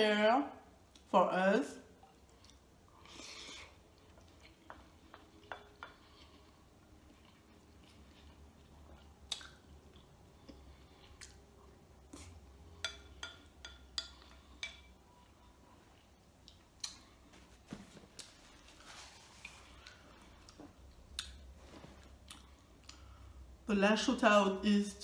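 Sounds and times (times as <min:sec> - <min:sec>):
chewing: 0:02.0 - 0:12.3.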